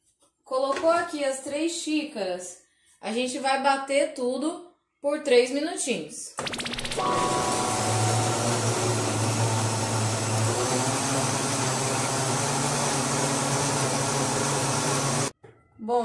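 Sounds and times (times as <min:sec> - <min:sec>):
blender running: 0:06.9 - 0:15.3.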